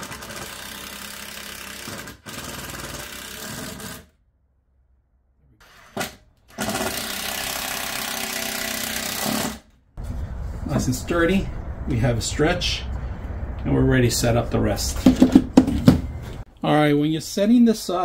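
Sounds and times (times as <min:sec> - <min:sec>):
cordless drill driving screws: 0:00.0 - 0:04.1, 0:06.5 - 0:09.6.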